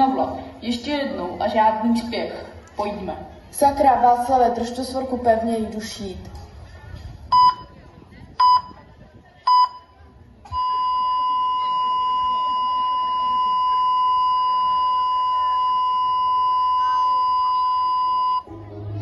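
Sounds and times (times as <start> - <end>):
heart monitor beep: 7.3 - 7.7, 8.4 - 8.8, 9.5 - 9.9, 10.5 - 18.5
steady flatline tone: 10.5 - 19.0.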